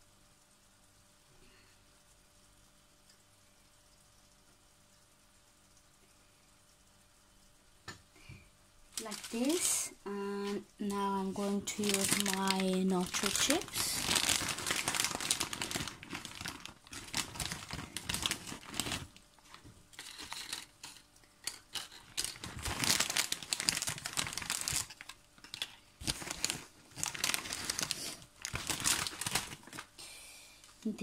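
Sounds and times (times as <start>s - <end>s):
chip bag crinkling: 8.9s - 30.1s.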